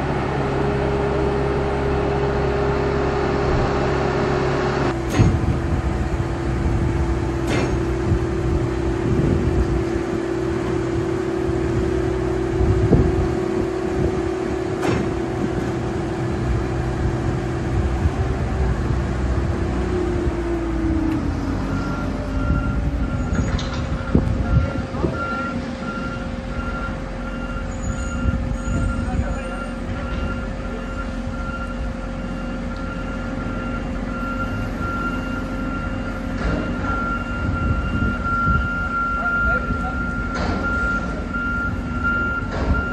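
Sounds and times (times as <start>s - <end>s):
hoist engine drone: 0.0s - 42.9s.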